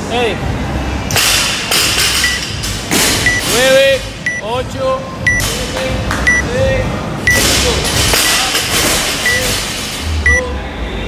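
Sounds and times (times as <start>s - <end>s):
countdown timer beeping: 2.2s - 2.5s, 3.2s - 3.4s, 4.2s - 4.5s, 5.2s - 5.5s, 6.2s - 6.5s, 9.2s - 9.5s.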